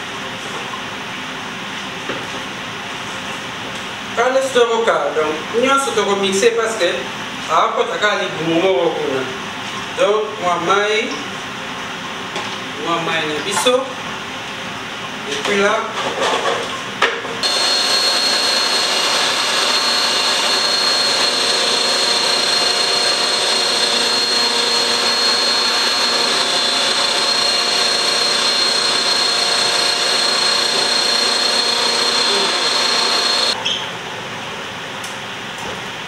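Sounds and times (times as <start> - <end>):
blender whining: 17.4 - 33.6.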